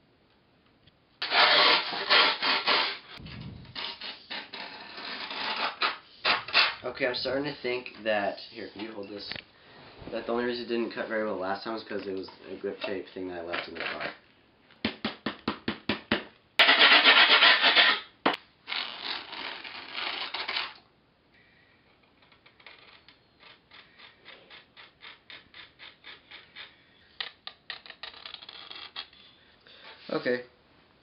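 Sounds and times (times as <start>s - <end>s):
grip tape rasping: 1.2s - 6.8s, 16.6s - 18.1s, 18.7s - 20.8s, 22.1s - 29.4s
marker pen scratching: 22.5s - 26.8s.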